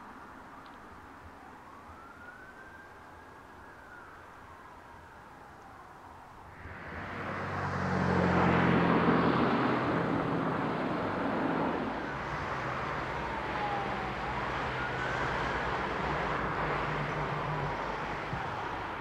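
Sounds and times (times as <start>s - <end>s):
diesel engine humming: 6.5s - 19.0s.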